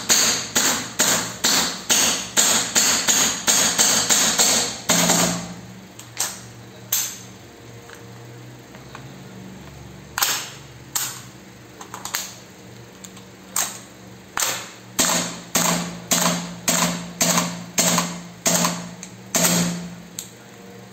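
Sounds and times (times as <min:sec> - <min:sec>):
airsoft rifle shots: 0:14.4 - 0:19.9.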